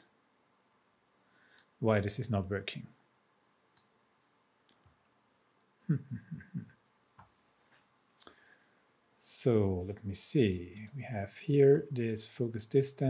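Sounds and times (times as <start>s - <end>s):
person muttering: 5.9s - 6.7s.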